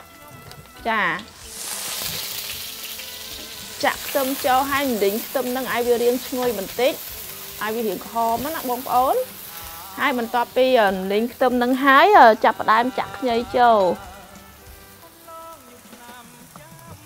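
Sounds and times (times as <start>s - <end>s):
shallots sizzling in hot oil: 0.0s - 17.0s
woman talking: 0.8s - 1.3s, 3.8s - 7.0s, 7.6s - 9.3s, 10.0s - 14.0s.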